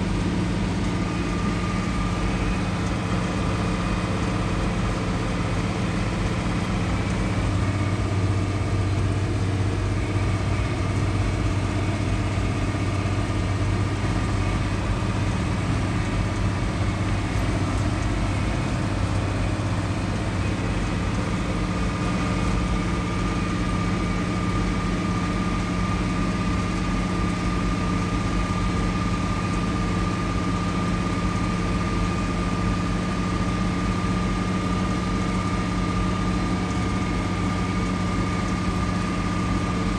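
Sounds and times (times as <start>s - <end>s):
thin steady whine: 0.0s - 28.2s
tractor engine running: 0.0s - 39.9s.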